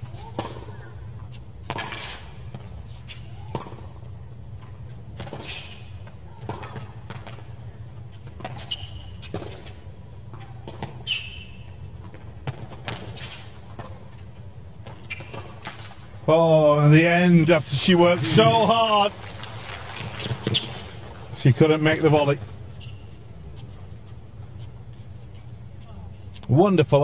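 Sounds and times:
shoes squeaking on court: 0.0 - 16.2, 17.2 - 26.6
steady low hum: 0.0 - 27.0
tennis ball bouncing: 0.1 - 16.1, 18.3 - 21.4.

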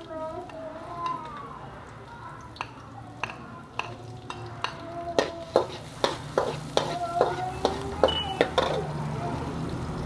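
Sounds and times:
oil sizzling: 0.0 - 10.0
metal ladle scraping a wok: 5.2 - 8.9.

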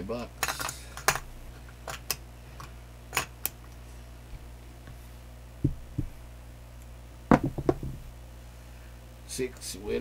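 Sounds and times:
dull thump: 5.6 - 6.2, 7.3 - 8.1.

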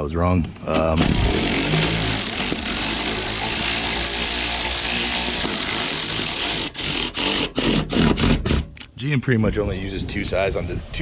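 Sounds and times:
power drill driving screw: 0.8 - 8.7.

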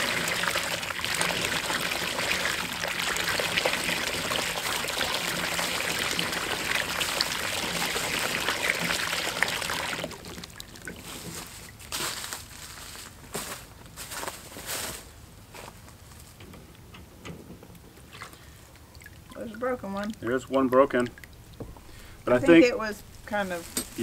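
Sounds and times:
water splashing into trough: 0.0 - 11.9, 18.0 - 24.0.

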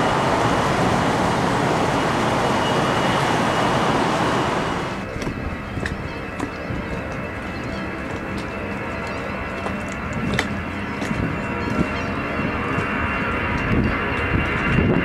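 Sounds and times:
jet engines high whine: 0.0 - 15.0.

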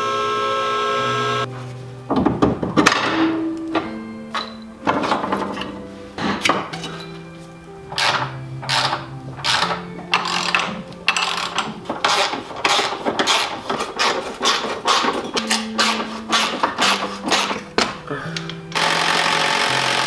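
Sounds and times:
background music: 0.0 - 20.0
metal tools scraping: 4.4 - 7.3, 7.9 - 18.6.

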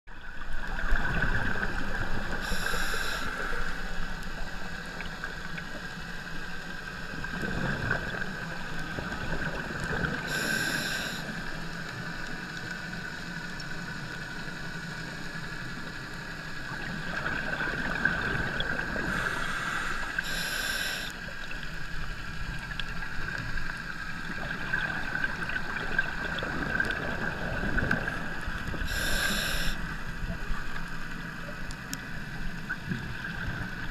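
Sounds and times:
exhaled bubbles rumbling: 0.1 - 2.7, 7.0 - 10.4, 16.6 - 20.3, 21.3 - 33.9
steady hum: 0.2 - 33.9
regulator inhalation hiss: 2.4 - 3.7, 10.3 - 11.4, 19.0 - 21.2, 28.8 - 29.9.

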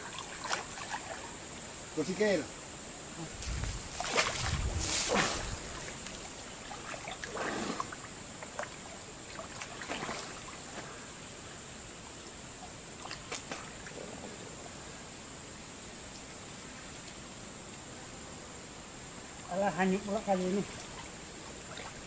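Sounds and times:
water splashing from swimming: 0.0 - 1.3, 3.9 - 10.8, 13.0 - 14.3, 20.7 - 22.0.

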